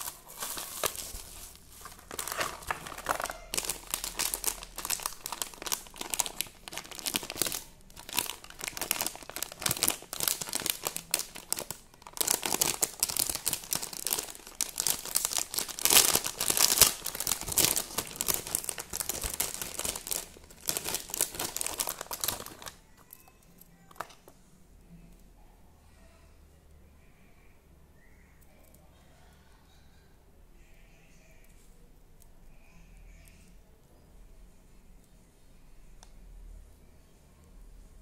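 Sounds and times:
plastic packaging crinkling: 0.0 - 24.4.

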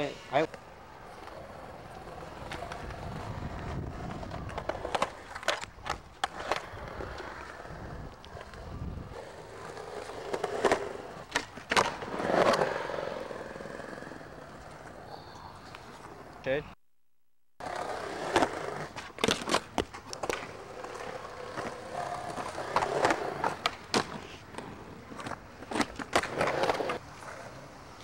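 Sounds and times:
skateboard wheels rolling on concrete: 0.0 - 16.5, 17.6 - 28.0
skateboard clacks: 9.2 - 12.8, 17.6 - 27.1.

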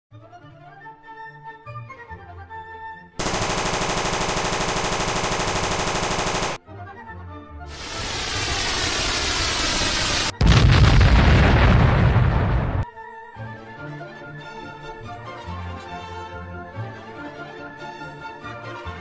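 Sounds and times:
rapid automatic gunfire: 3.2 - 6.6
loud explosion: 7.7 - 12.8
rocket whoosh: 7.7 - 12.8
soft music: 12.9 - 19.0.

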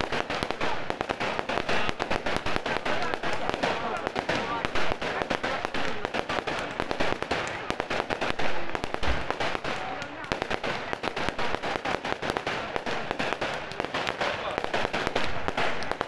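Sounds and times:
fireworks bursting and crackling: 0.0 - 16.0.

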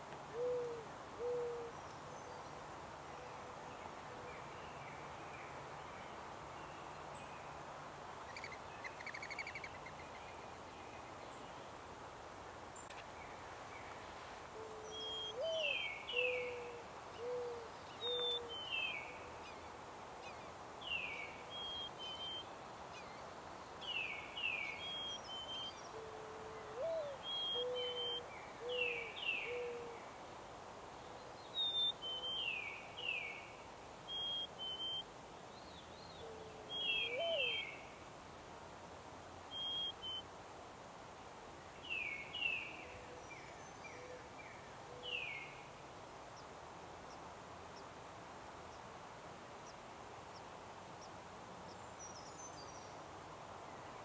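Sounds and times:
mourning dove cooing: 0.3 - 2.4, 14.5 - 19.3, 25.9 - 30.1, 36.2 - 37.8, 42.8 - 45.4
songbird high whistles: 39.6 - 40.2.

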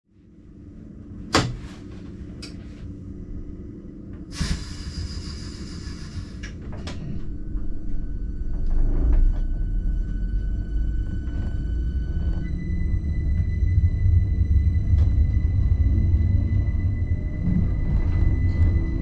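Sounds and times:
railcar rumble with whining tones: 0.1 - 19.0
air hiss: 4.3 - 6.6.

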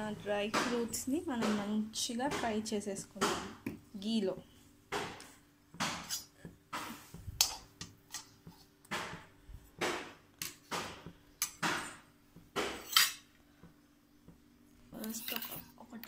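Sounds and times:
steel utensils clinking and scraping: 12.8 - 13.2.

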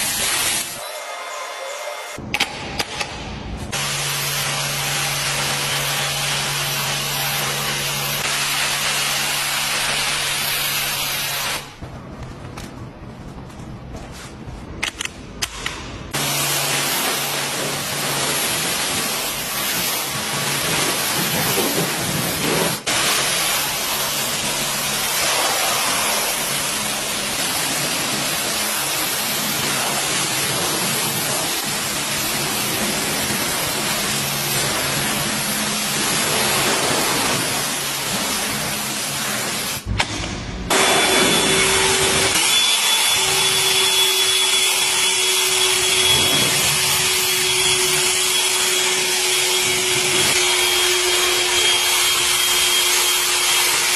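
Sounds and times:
pressure washer spraying water: 0.0 - 0.8, 3.7 - 11.8, 16.1 - 39.9, 40.7 - 53.9
electric blower rushing air: 40.7 - 53.9.

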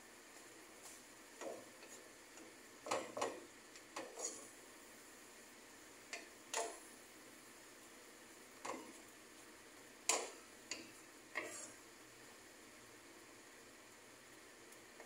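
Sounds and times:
wooden spatula scraping a pan: 0.9 - 3.4, 4.0 - 4.6, 10.1 - 11.9.

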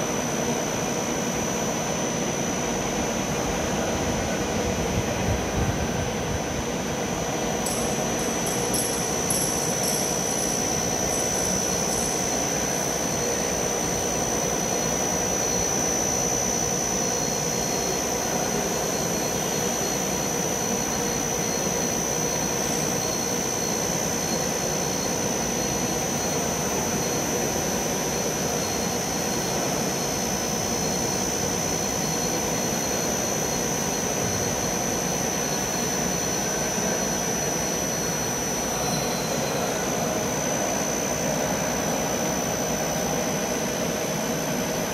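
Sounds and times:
milling head high-pitched whine: 0.0 - 44.9.

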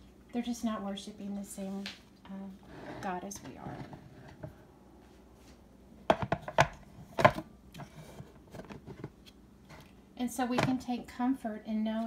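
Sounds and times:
trays knocking on wooden table: 6.1 - 7.4.

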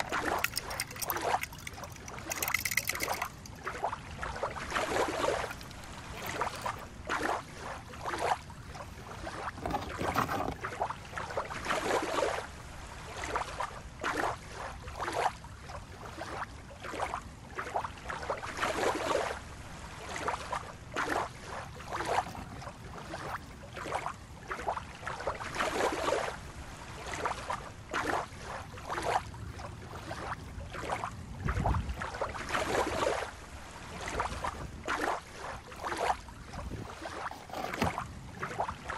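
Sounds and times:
waves lapping on rocks: 0.0 - 17.1.

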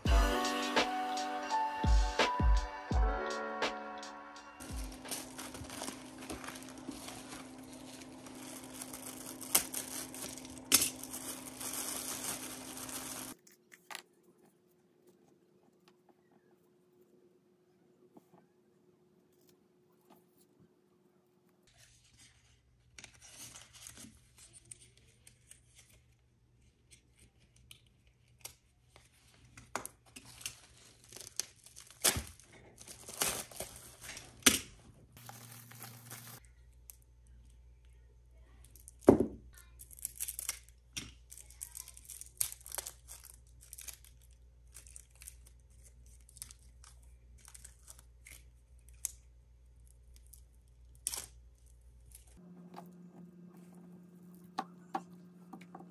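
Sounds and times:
paper tearing and crinkling: 4.6 - 13.6, 30.2 - 34.5, 35.2 - 36.4.

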